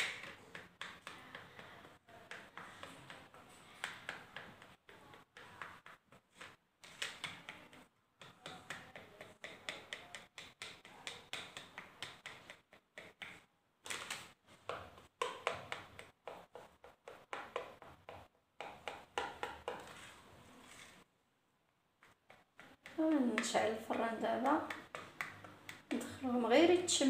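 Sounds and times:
fork tapping pastry: 0.0s - 13.4s, 22.0s - 26.2s.

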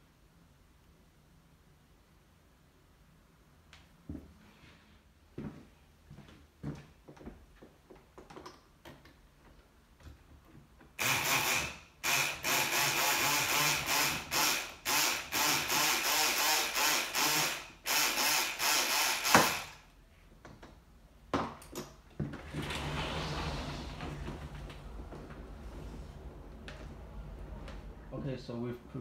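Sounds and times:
electric pick gun bursts: 11.0s - 19.9s.

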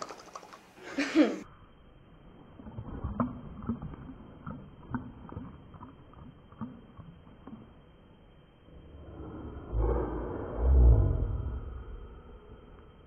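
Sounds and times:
slowed-down deep voice sounds: 8.8s - 13.0s.

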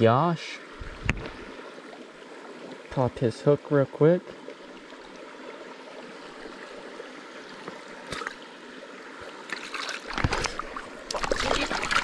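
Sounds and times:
creek flowing over rocks: 0.0s - 12.0s
sharp splash: 9.5s - 12.0s.

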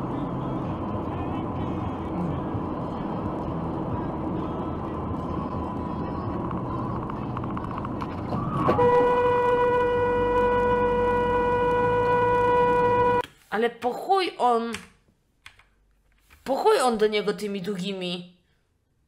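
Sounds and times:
car road noise: 0.0s - 13.2s
car horn held note: 8.8s - 13.2s.

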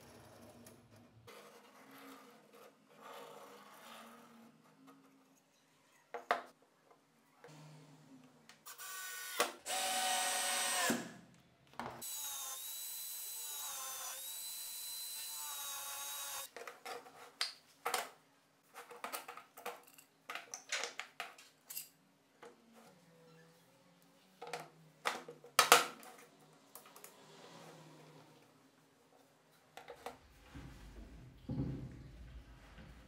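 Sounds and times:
electric drill whining through wood: 8.7s - 11.1s, 12.0s - 16.5s.

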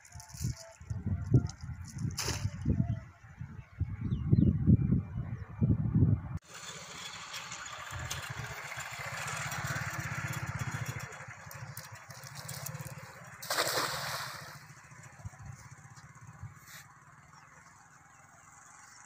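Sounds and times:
net splashing on water: 11.9s - 14.8s.

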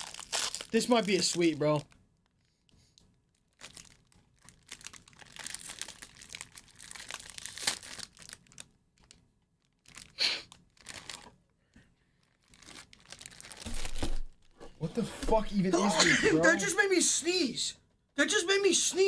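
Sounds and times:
wrapper rustling: 0.0s - 11.4s, 12.1s - 14.6s
biscuit wrapper crinkling: 0.0s - 14.6s.

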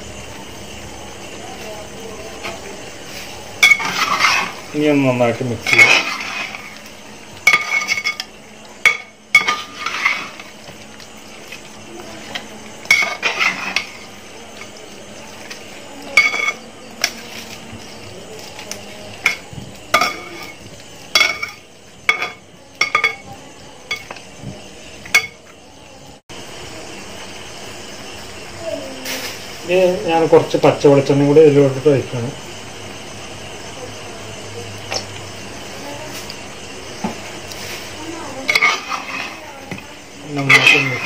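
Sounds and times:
faint sizzling: 0.0s - 41.0s
metal ladle clinking in pot: 7.4s - 10.4s.

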